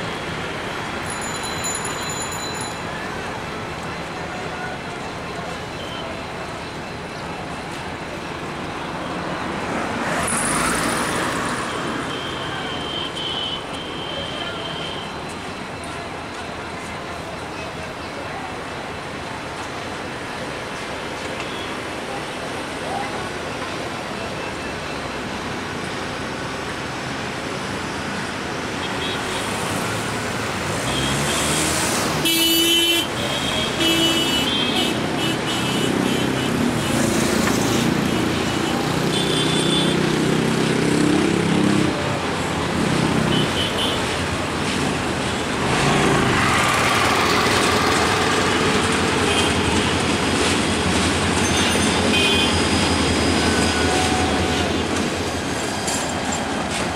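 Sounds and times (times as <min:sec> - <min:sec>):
city traffic noise: 0:00.0 - 0:56.9
diesel train rumbling: 0:40.8 - 0:56.9.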